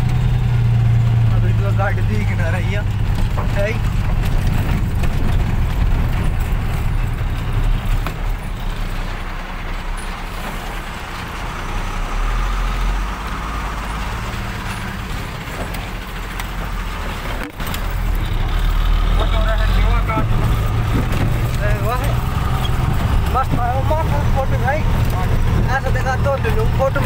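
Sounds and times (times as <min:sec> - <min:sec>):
vehicle engine drone from inside cab: 0:00.0 - 0:27.0
tyre and wind noise: 0:02.8 - 0:11.2, 0:19.9 - 0:27.0.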